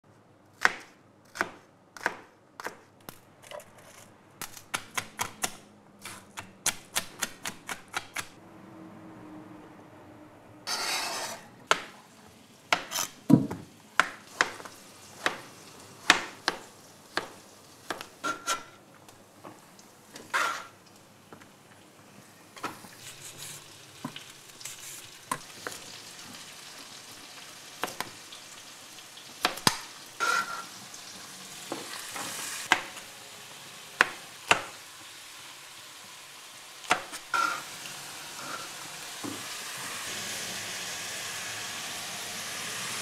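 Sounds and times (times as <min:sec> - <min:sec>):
knife chopping on cutting board: 0:12.7 - 0:18.7.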